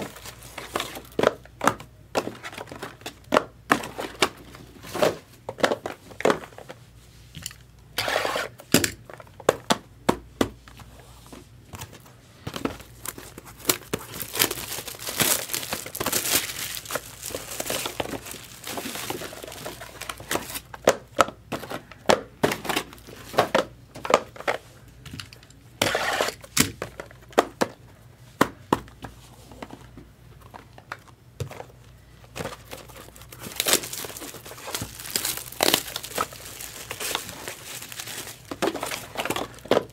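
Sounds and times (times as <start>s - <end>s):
packaging crinkling and tearing: 12.8s - 20.7s, 32.4s - 39.9s.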